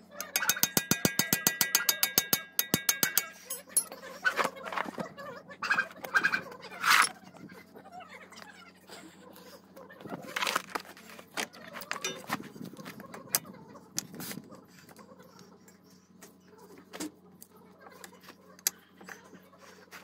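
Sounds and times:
metallic clicks and clinks: 0.1 - 4.1, 11.9 - 12.4.

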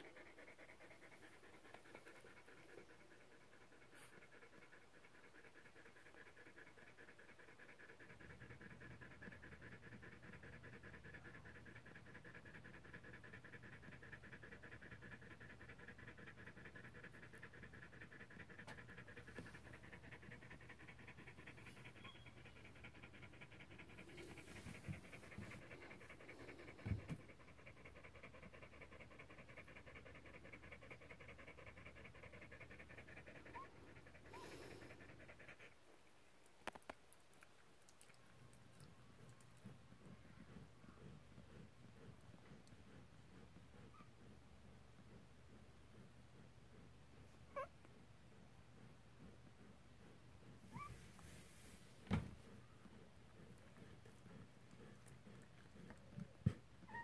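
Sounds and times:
dog panting rapidly: 0.0 - 36.0, 38.0 - 57.0
soft thump: 52.0 - 52.4.

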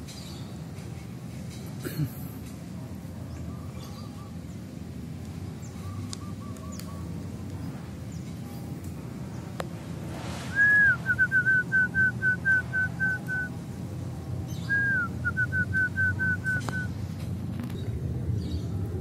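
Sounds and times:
clear whistled call: 10.5 - 13.5, 14.6 - 17.0.

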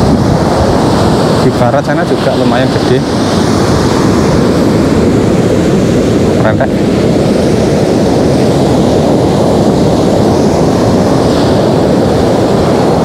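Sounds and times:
ocean surf breaking: 0.0 - 13.0
wind buffeting microphone: 0.0 - 13.0.

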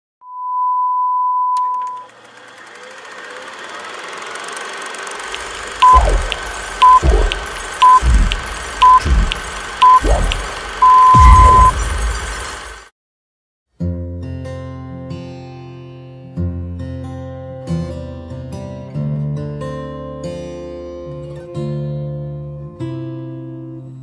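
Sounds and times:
steady test tone beep: 0.2 - 2.0, 5.8 - 11.9
short beeps: 0.2 - 2.1, 5.8 - 11.9
deep falling boom: 10.0 - 12.2.

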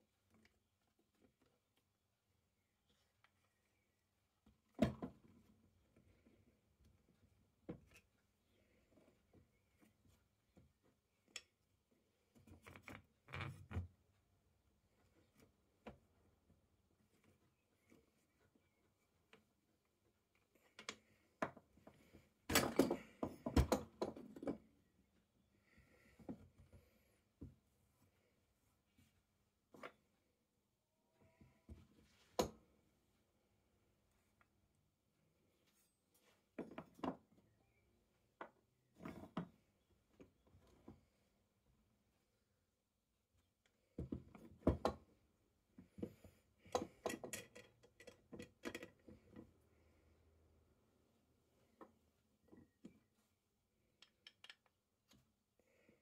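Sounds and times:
metal drill parts clicking and knocking: 46.6 - 49.2, 54.0 - 54.8.

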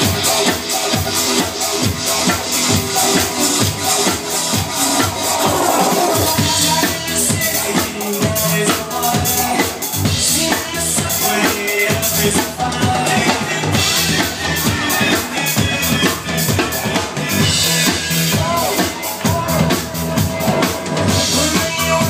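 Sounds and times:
live drum kit beat: 0.0 - 22.0
electronic dance music: 0.2 - 6.8.

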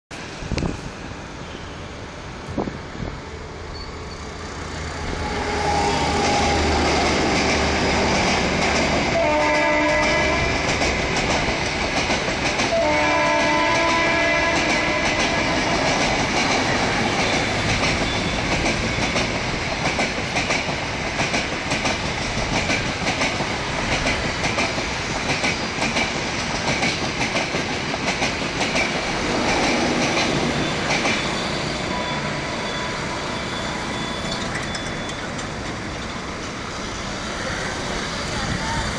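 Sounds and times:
train wheels clacking over rail joints: 5.3 - 31.9, 33.9 - 38.9
locomotive air horn blasts: 9.1 - 10.6, 12.7 - 15.6.

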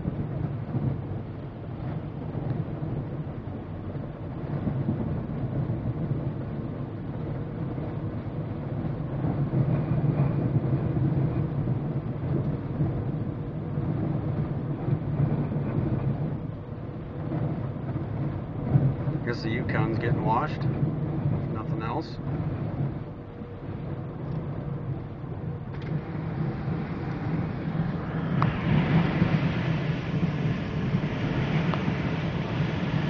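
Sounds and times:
car cabin rumble and rush: 0.0 - 33.0
water spraying against car body: 25.8 - 33.0.

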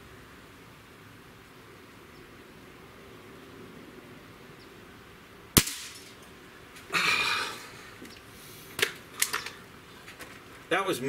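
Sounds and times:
air rifle shot: 5.6 - 6.2.

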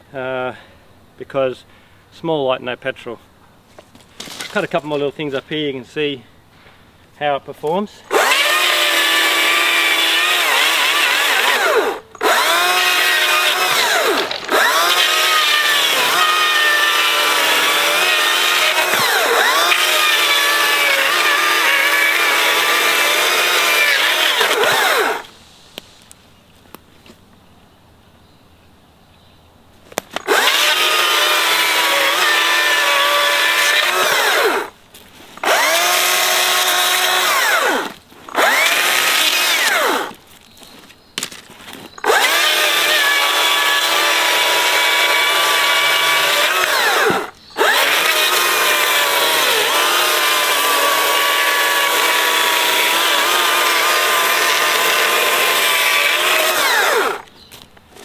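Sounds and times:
battery chainsaw cutting log: 8.1 - 25.3, 30.0 - 34.8, 35.4 - 40.2, 42.0 - 57.3.

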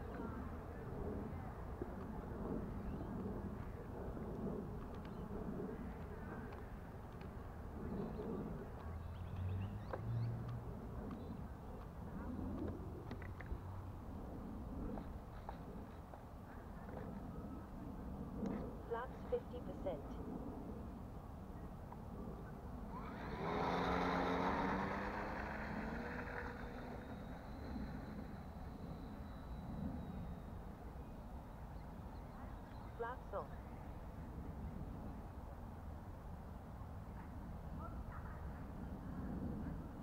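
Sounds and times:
low buzzing hum: 0.0 - 37.9
model plane electric motor whine: 22.9 - 31.3
faint high chirps: 25.1 - 33.0.

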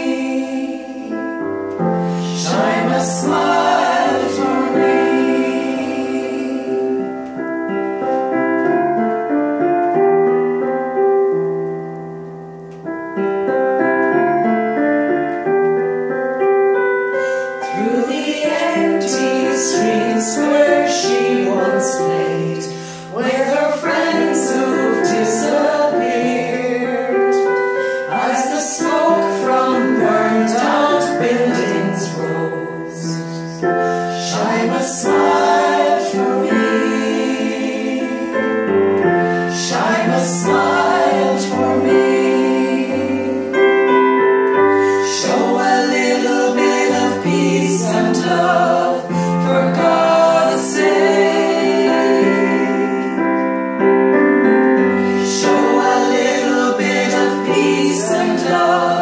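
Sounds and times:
women's vocal group singing: 0.0 - 7.4, 17.4 - 44.0, 44.7 - 53.6, 55.0 - 59.0
piano keyboard accompaniment: 0.0 - 59.0.

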